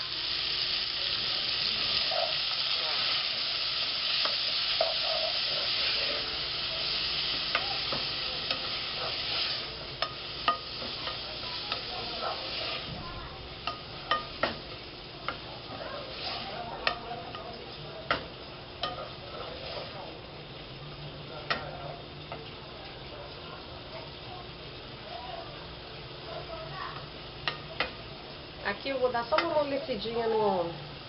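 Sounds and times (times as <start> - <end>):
onion sizzling in hot oil: 0.0 - 31.0.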